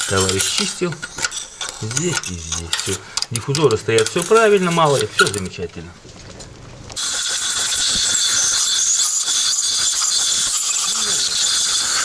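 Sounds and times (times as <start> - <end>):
air blow gun hissing: 7.0 - 12.0.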